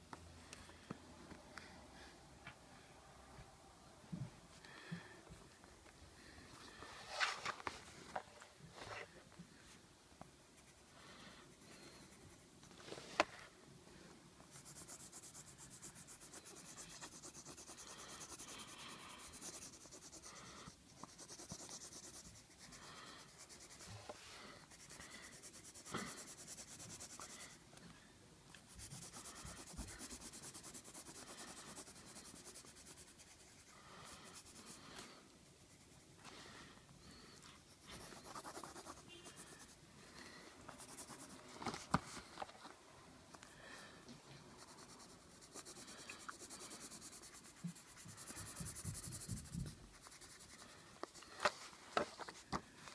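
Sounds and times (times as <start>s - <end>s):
pencil scratching on paper: 14.5s - 27.6s, 28.7s - 36.1s, 37.6s - 39.8s, 40.7s - 42.1s, 44.5s - 51.4s.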